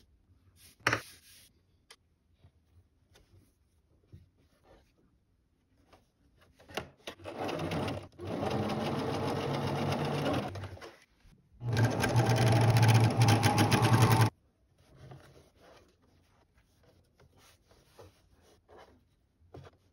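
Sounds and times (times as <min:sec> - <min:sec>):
sewing machine stitching: 0:07.2 - 0:10.9, 0:11.6 - 0:14.3.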